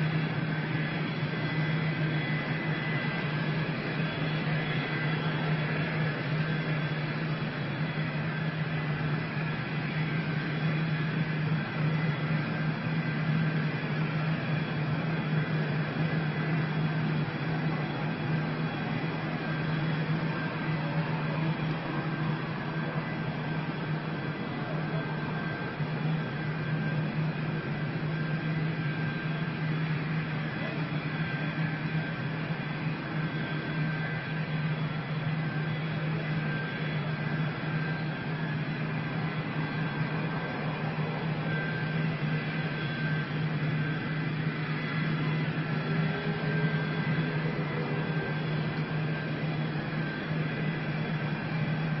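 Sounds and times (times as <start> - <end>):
engine drone: 0.0 - 52.0.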